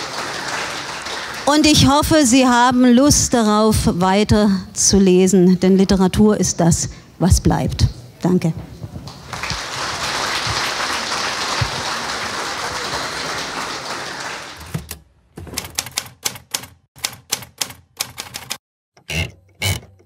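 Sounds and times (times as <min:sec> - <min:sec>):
audience applauding: 0:00.0 - 0:01.8, 0:09.1 - 0:14.6
sharp clicks and knocks: 0:14.6 - 0:20.0.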